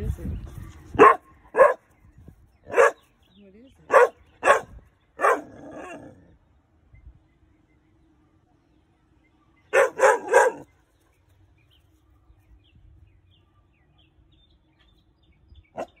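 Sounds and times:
puppy barking: 1.0s - 1.8s, 2.7s - 3.0s, 3.9s - 6.1s, 9.7s - 10.7s.

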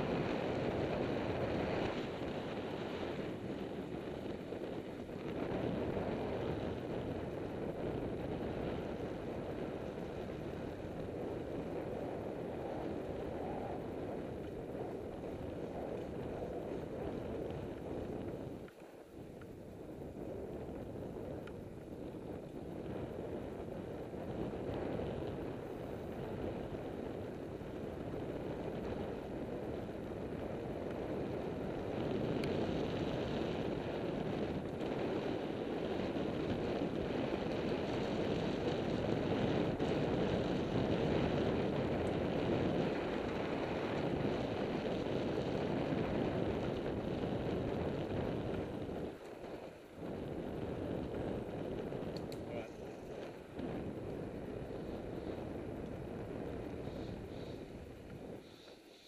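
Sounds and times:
bicycle tyre noise on tarmac: 0.0s - 59.0s
wind rushing over microphone: 0.0s - 59.0s.

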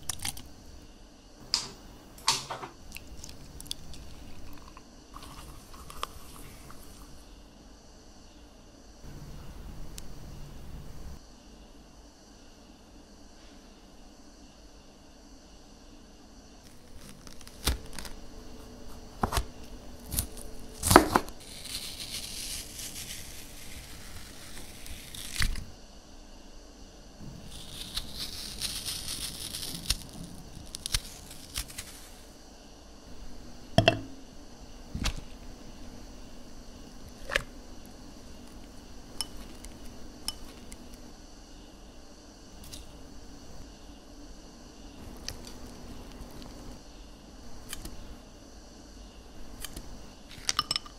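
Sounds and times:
melon baller scraping fruit: 2.9s - 7.2s, 16.7s - 25.7s, 27.2s - 32.3s
metal spoon clinking glass bowl: 33.8s - 34.2s, 50.5s - 50.9s.

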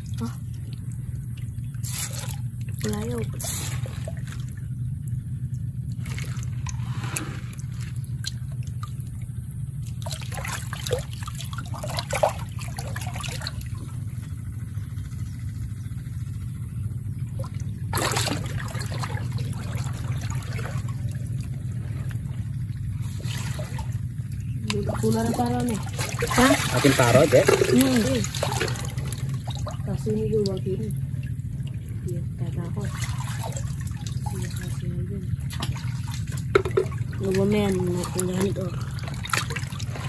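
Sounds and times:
low rumble: 0.0s - 40.0s
hands splashing in muddy water: 5.8s - 9.2s, 17.5s - 29.8s, 32.7s - 40.0s.

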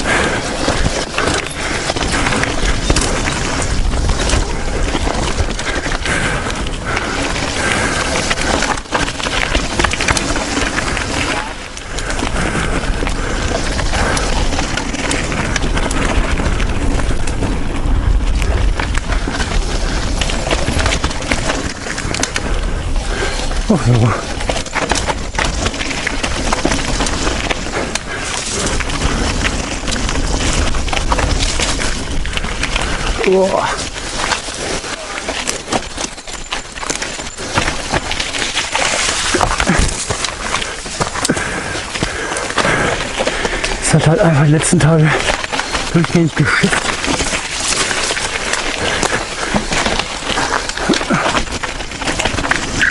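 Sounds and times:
wind rumble on microphone: 0.0s - 34.7s
bike clicks and rattles: 0.0s - 52.9s
tyres on dirt: 0.0s - 52.9s.

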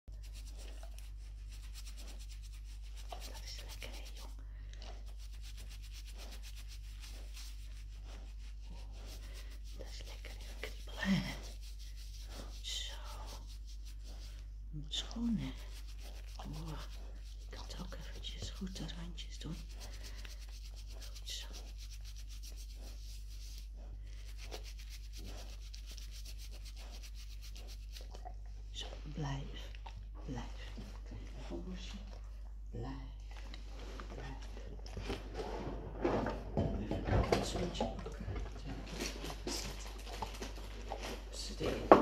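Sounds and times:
cotton pad rubbing dog's ear: 0.1s - 4.4s, 5.0s - 28.2s.

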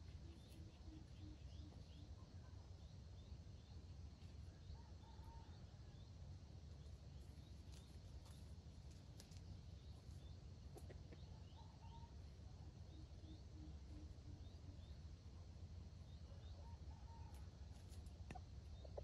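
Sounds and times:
faint small bird chirps: 0.0s - 6.1s, 9.2s - 15.2s.

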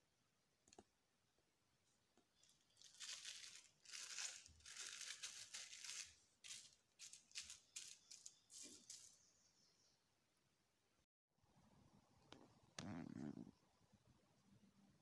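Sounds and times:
plastic food wrap crinkling: 2.4s - 9.2s.

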